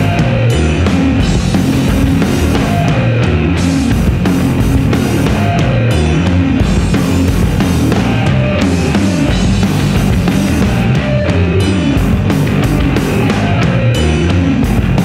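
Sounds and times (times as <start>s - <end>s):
bass guitar: 0.0s - 15.0s
distorted electric guitar: 0.0s - 15.0s
drum kit: 0.0s - 15.0s.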